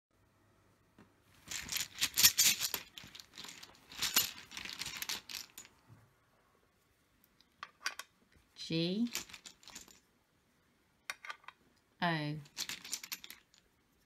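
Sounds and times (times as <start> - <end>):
game tiles clattering in bag: 1.4 - 5.7, 9.1 - 10.0, 12.4 - 13.6.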